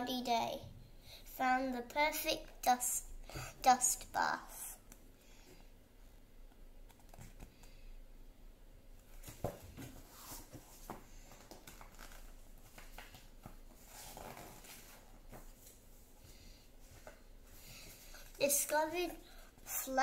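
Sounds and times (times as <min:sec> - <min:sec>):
rustling of a picture book: 0:09.1 - 0:18.8.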